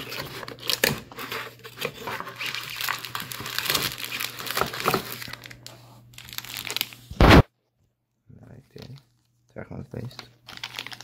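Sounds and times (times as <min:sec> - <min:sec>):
plastic bags crinkling: 0:00.0 - 0:07.0, 0:10.0 - 0:11.0.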